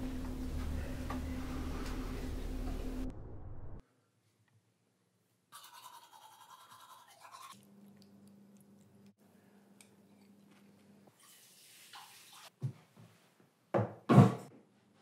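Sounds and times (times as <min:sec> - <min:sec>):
low hum: 0:00.0 - 0:04.0
toothbrush scrubbing teeth: 0:05.6 - 0:09.1.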